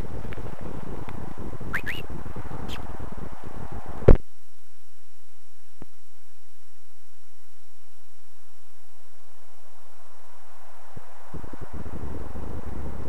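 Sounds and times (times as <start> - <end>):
wind buffeting microphone: 0.0 - 4.2, 10.6 - 13.0
short rising chirps: 1.8 - 2.0
faint steady hum and hiss: 2.7 - 13.0.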